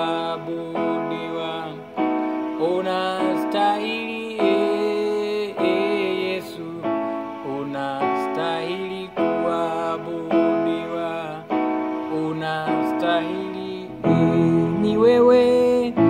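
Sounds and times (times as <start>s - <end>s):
keyboard playing sustained chords: 0.0s - 16.0s.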